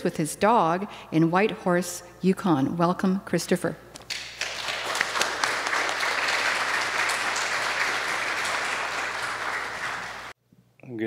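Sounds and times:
audience applauding: 4.1 - 10.4.

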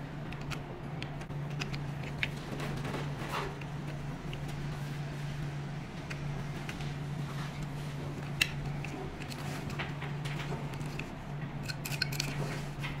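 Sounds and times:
steady low hum: 0.0 - 13.0
plastic parts clicking: 8.2 - 12.4.

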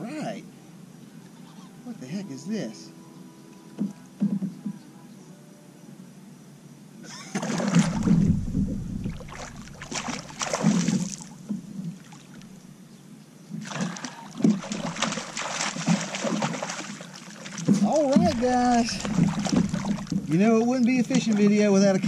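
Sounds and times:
fish thrashing water splashing: 7.3 - 12.6, 13.6 - 22.0.

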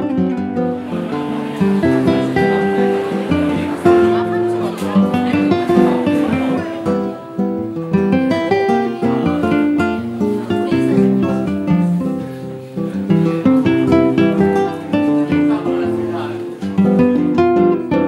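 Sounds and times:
acoustic guitar playing: 0.0 - 18.0.

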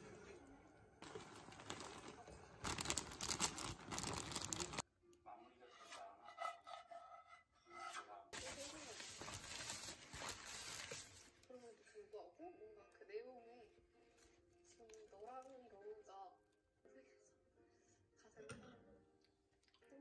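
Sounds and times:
paper bag rustling: 1.0 - 4.8, 8.4 - 11.4
plastic bag crackling: 1.0 - 4.8, 8.4 - 11.3.

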